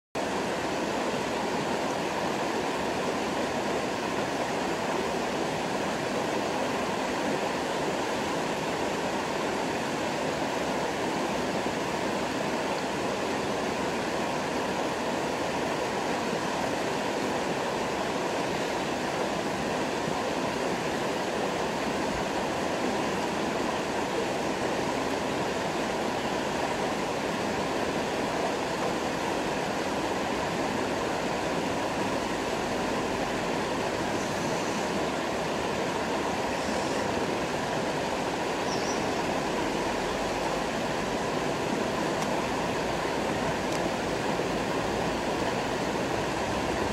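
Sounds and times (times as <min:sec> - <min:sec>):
stream flowing over stones: 0:00.2 - 0:46.9.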